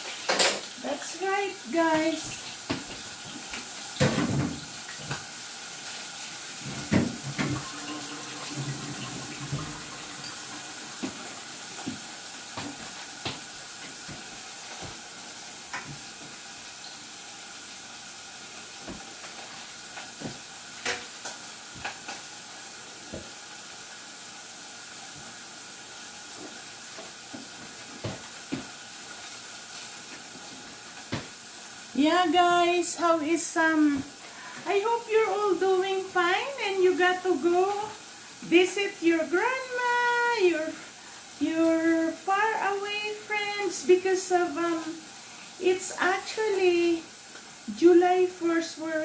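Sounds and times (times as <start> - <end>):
steak sizzling in a pan: 0.0 - 49.0.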